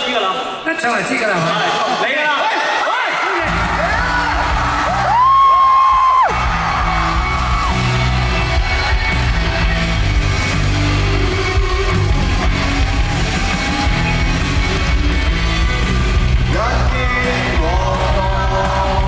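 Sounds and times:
live band music: 0.9s - 19.0s
heavy bass line: 6.1s - 19.0s
people singing into microphones: 16.5s - 19.0s.

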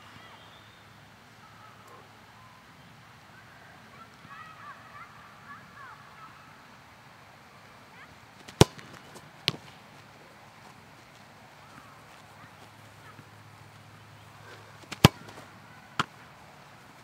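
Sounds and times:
ball smacking goalkeeper: 8.4s - 9.8s, 14.8s - 16.2s
soccer ball kicked: 8.4s - 9.8s, 14.5s - 16.2s.

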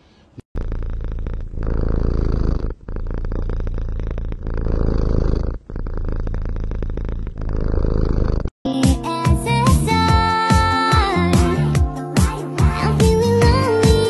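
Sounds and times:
cat purring: 0.6s - 8.6s.

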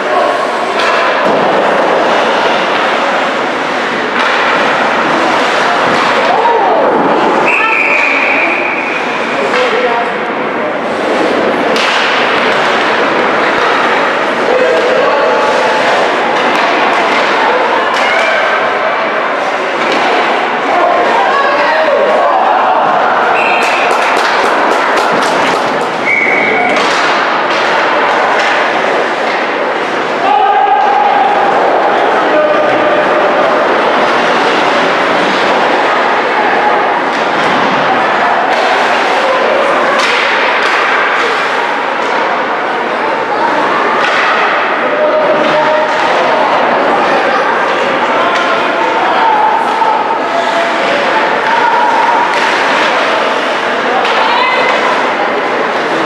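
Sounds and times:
arena noise: 0.0s - 56.0s
voices of players and spectators: 0.0s - 56.0s
hockey sticks and puck hitting boards: 0.7s - 7.6s, 11.0s - 18.7s, 19.5s - 20.4s, 22.8s - 30.1s, 37.1s - 42.3s, 43.6s - 46.5s, 50.2s - 56.0s
skates on ice: 23.4s - 30.1s.

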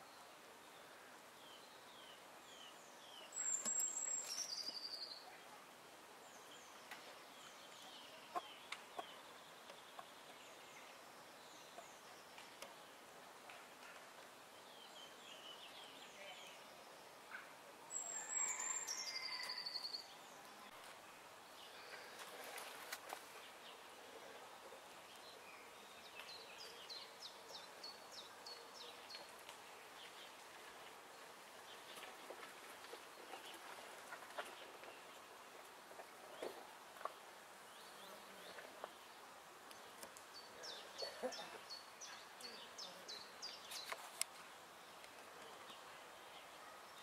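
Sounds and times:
faint outdoor hush: 0.0s - 47.0s
songbird singing a trill: 17.9s - 20.3s.

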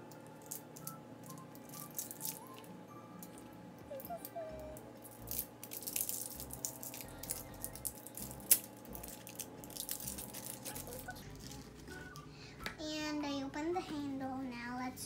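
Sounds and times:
plastic packaging rustling: 0.4s - 2.7s, 5.1s - 12.3s.

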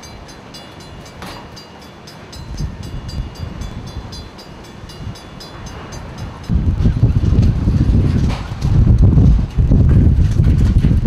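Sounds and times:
crossing signal bell ringing: 0.0s - 7.8s.

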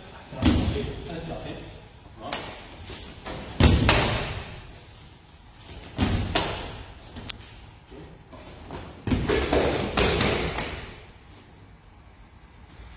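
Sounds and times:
strikes landing on body: 3.2s - 4.5s, 5.8s - 7.3s, 8.7s - 11.0s.

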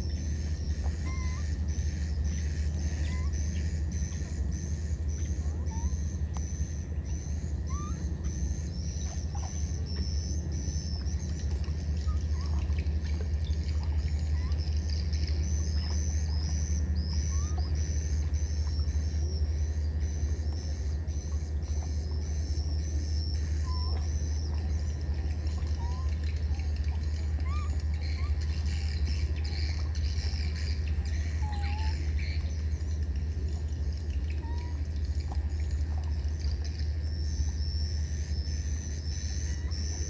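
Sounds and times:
steady low rumble: 0.0s - 40.0s.

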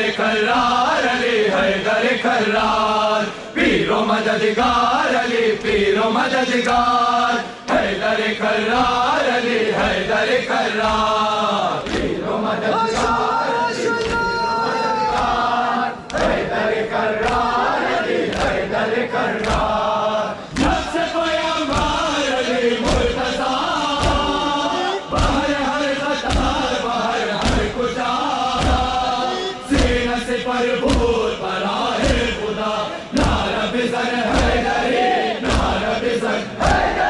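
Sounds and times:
crowd of men chanting: 0.0s - 37.0s
hands beating on chests: 26.2s - 29.1s, 33.1s - 33.6s, 34.3s - 36.0s.

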